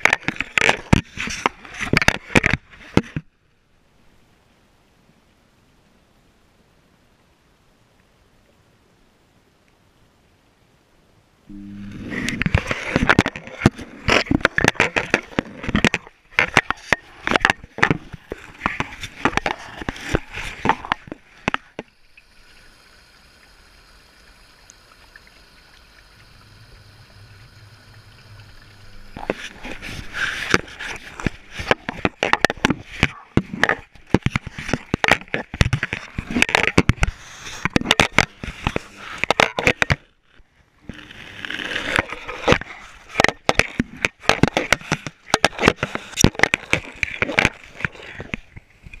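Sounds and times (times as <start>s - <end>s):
faint steady hum: 0.0s - 49.0s
water sloshing: 24.6s - 39.7s.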